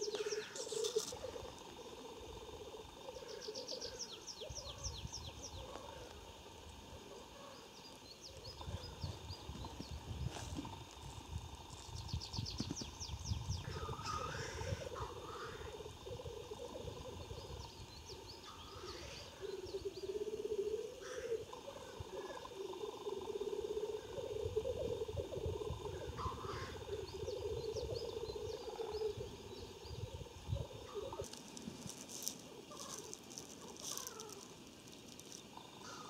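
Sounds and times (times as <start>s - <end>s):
black grouse bubbling cooing song: 0.0s - 5.8s, 12.4s - 34.6s.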